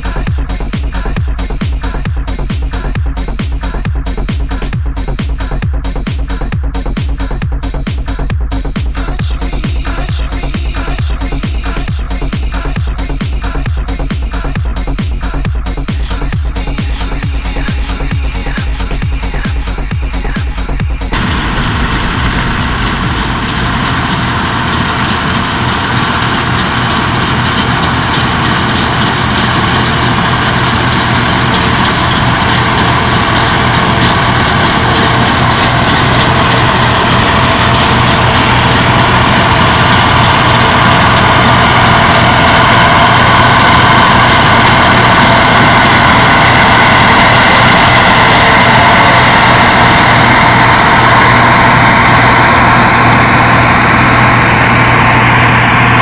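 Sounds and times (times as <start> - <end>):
combine harvester running: 15.3 - 56.0.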